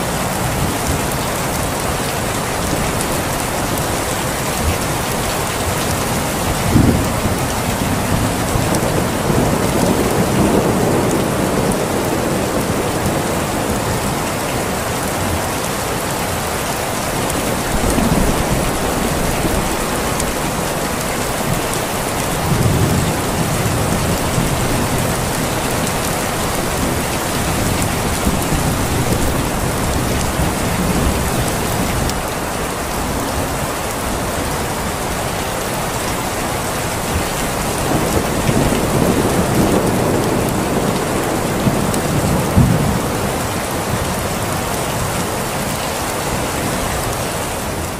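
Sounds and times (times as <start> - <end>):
heavy rain: 0.0 - 47.9
thunder rolling: 6.4 - 13.8, 37.6 - 44.1.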